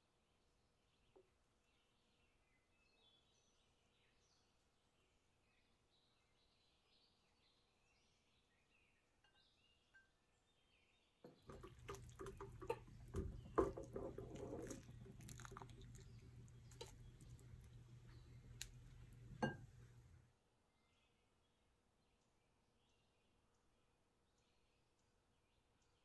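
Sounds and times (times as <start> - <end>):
boiling water bubbling: 11.3 - 20.0
low steady hum: 11.4 - 20.3.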